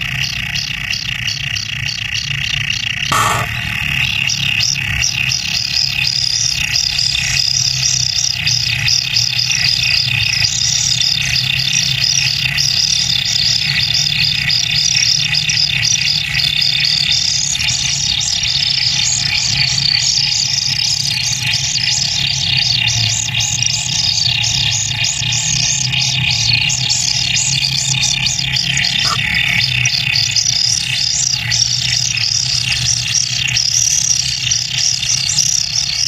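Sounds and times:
low steady hum: 3.1 - 4.4
nestlings high begging calls: 26.2 - 36.0.

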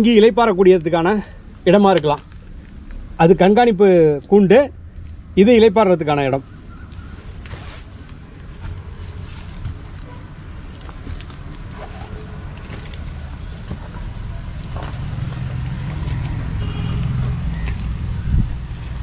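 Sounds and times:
road traffic rumble: 0.0 - 19.0
footsteps scuffing: 6.9 - 16.4.

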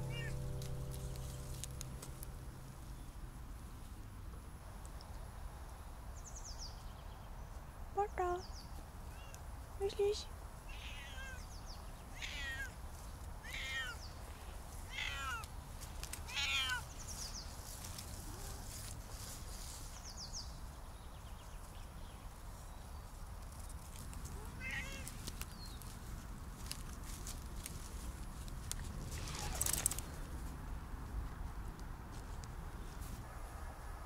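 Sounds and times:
cat meowing: 0.0 - 0.4, 10.7 - 11.5, 12.1 - 12.8, 13.4 - 14.0, 14.9 - 15.5, 16.3 - 16.8, 24.4 - 25.2.

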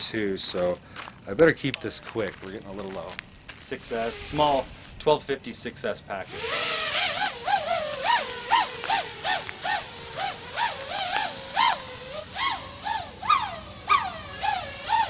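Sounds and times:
drone motors whining: 6.3 - 15.0.

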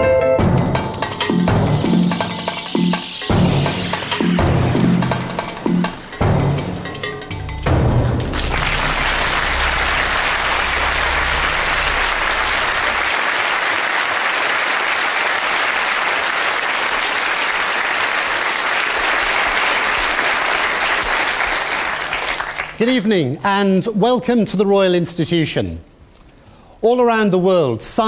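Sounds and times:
audience applauding: 8.0 - 23.1.

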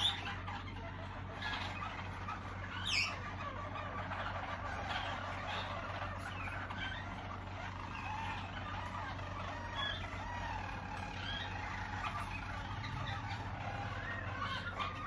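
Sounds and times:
canaries singing: 0.0 - 15.0
steady low hum: 0.0 - 15.0.

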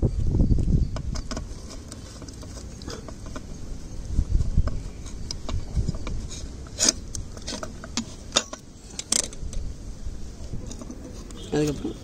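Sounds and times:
small metal clicks and scraping: 0.9 - 3.6, 4.5 - 9.7, 10.4 - 11.9.

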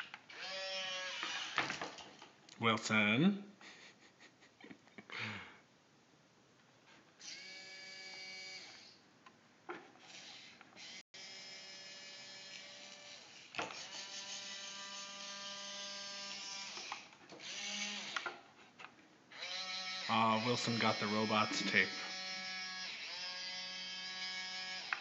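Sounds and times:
toy robot motors whining: 0.0 - 1.8, 7.2 - 9.0, 10.0 - 18.3, 19.3 - 25.0.

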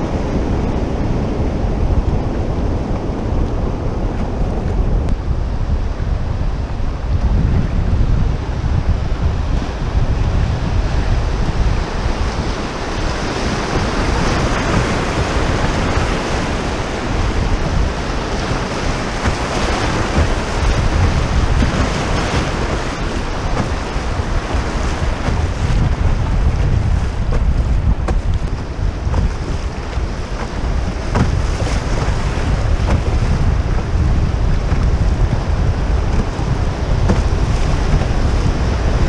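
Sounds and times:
waves splashing around canoe: 0.0 - 39.0
wind buffeting microphone: 0.0 - 39.0
river rapids rushing: 12.0 - 26.8.

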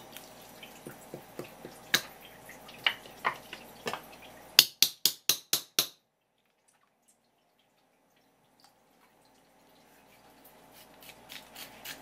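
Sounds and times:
wet taps and drips: 0.1 - 9.4.

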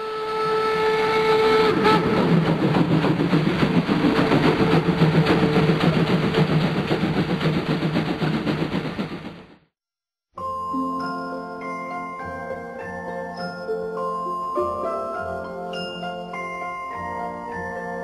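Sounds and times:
steam whistle blowing: 0.0 - 2.3
steam locomotive chuffing: 0.4 - 9.7.

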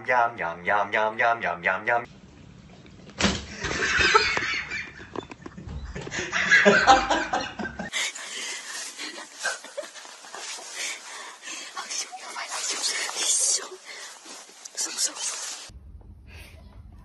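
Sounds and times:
faint room noise: 2.1 - 17.0
man laughing: 6.0 - 8.0.

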